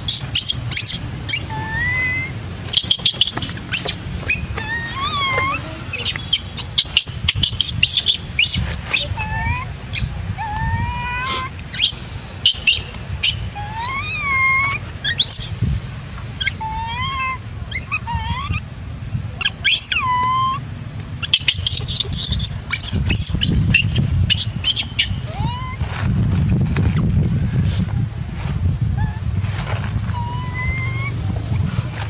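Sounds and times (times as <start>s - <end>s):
young monkey whimpering: 0.0s - 15.5s, 16.4s - 18.6s, 19.4s - 20.6s, 21.2s - 25.8s, 28.9s - 29.3s, 30.0s - 31.3s.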